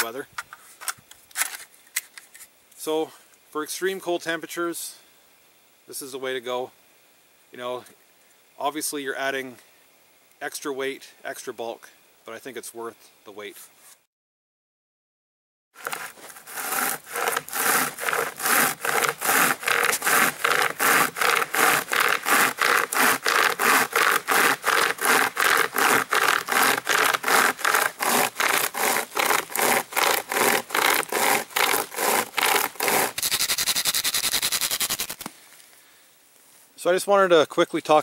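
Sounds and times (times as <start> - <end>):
pocket chainsaw sawing wood: 15.8 - 35.3.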